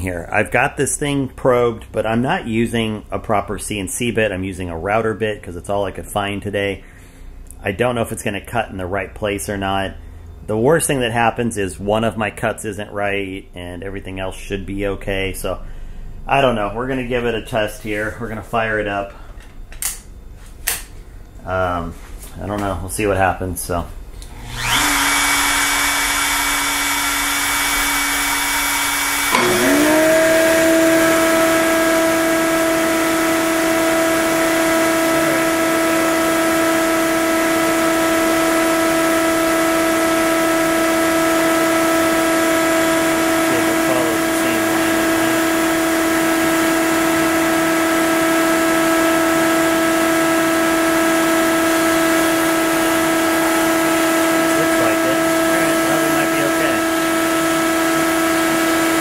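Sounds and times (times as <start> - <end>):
steady hum: 0.0 - 58.9
router motor whining: 24.2 - 59.0.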